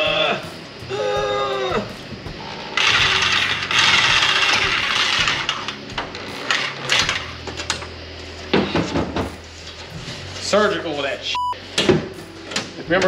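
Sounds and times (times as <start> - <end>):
electric shears cutting metal sheet: 2.1 - 7.9.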